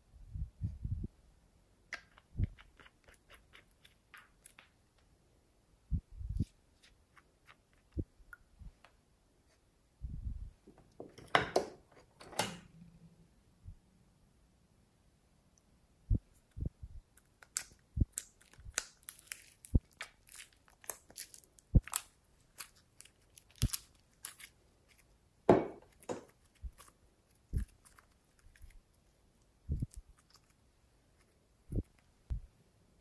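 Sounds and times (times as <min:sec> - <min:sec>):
slime squelch: 0:16.1 - 0:25.2, 0:25.9 - 0:32.0
sticky slime pops and crackles: 0:23.4 - 0:24.5.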